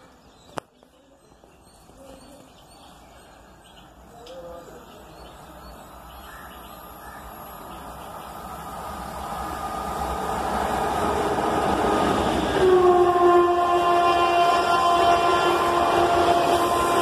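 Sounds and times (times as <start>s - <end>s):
birds chirping: 0.0s - 9.5s
approaching train rumble: 1.4s - 17.0s.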